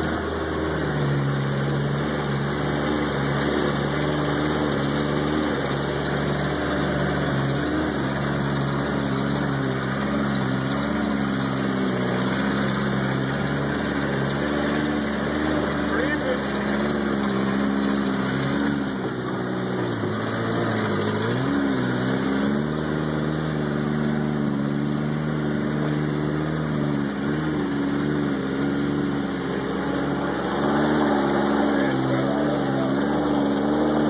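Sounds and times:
off-road engine revving in mud: 0:00.0 - 0:34.0.

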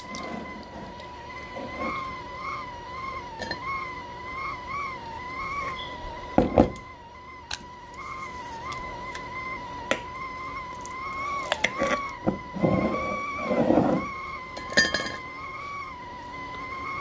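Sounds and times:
high wavering tone: 0:00.0 - 0:17.0.

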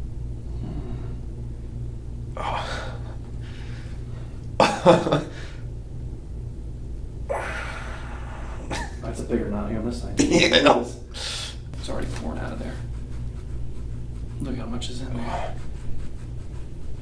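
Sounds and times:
steady low hum: 0:00.0 - 0:17.0
man gasping and groaning in pain: 0:02.4 - 0:03.2, 0:07.3 - 0:08.7.

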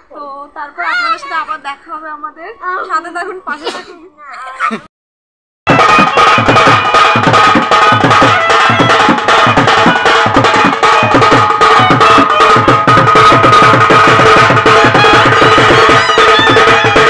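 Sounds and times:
fast hand drumming: 0:05.7 - 0:17.0
small stick-played drum: 0:05.7 - 0:17.0.

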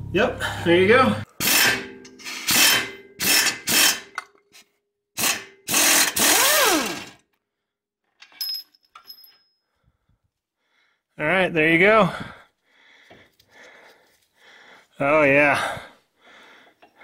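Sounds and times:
power tool spinning: 0:01.4 - 0:04.2, 0:05.2 - 0:07.2.

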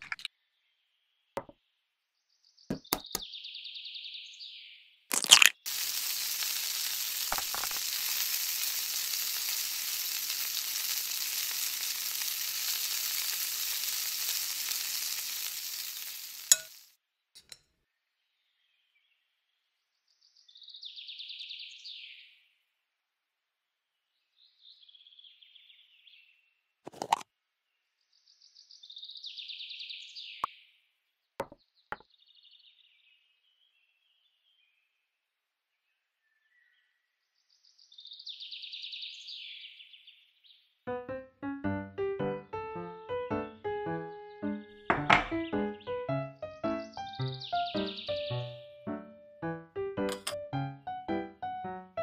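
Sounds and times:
egg sizzling in oil: 0:05.1 - 0:17.0.

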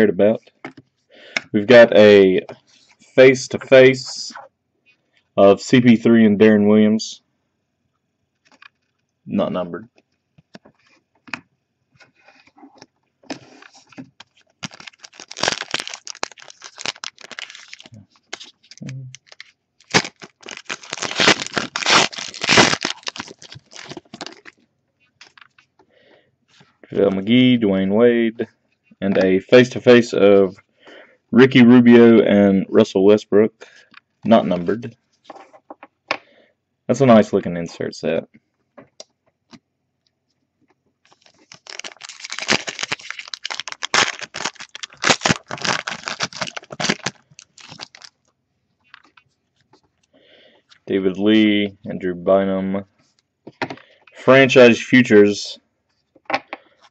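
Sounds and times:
foil wrapper tearing and crinkling: 0:14.2 - 0:24.6, 0:41.1 - 0:48.2.

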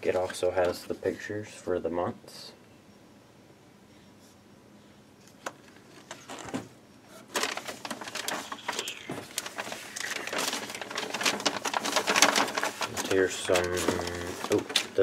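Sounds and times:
paper and packaging rustling: 0:07.2 - 0:15.0.

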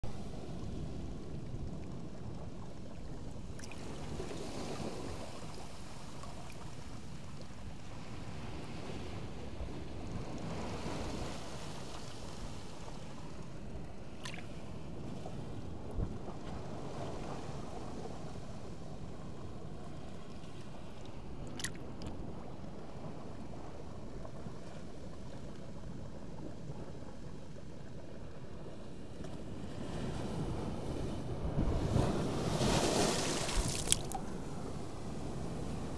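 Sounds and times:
water lapping over rocks: 0:21.1 - 0:22.4, 0:32.6 - 0:34.5
wind on microphone: 0:29.8 - 0:35.9
sea washing against rocks: 0:31.3 - 0:35.9.

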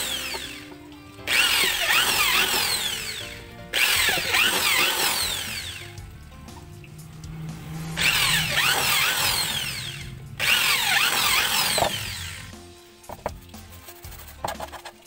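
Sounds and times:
small electric drill running: 0:00.0 - 0:06.0, 0:08.0 - 0:12.6.

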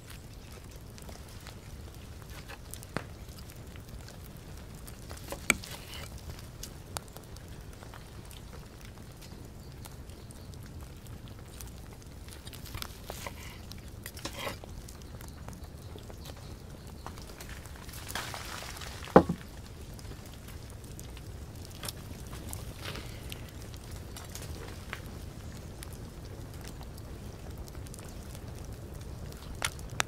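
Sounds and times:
knife and fork tapping board: 0:19.2 - 0:19.4.

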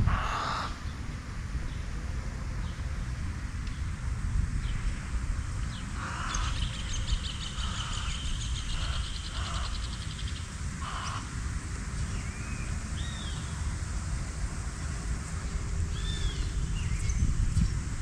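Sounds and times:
wind rumbling: 0:00.0 - 0:18.0
birds cawing: 0:00.1 - 0:00.9, 0:05.9 - 0:10.2, 0:10.8 - 0:11.4.

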